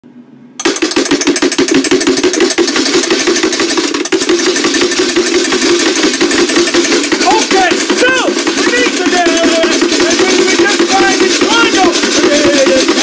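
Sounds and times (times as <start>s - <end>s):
motor humming with fast ticking: 0.6s - 13.0s.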